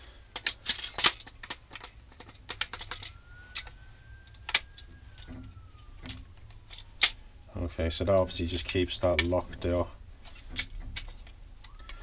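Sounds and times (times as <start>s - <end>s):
plastic parts clicking: 0.3s - 7.2s, 8.5s - 12.0s.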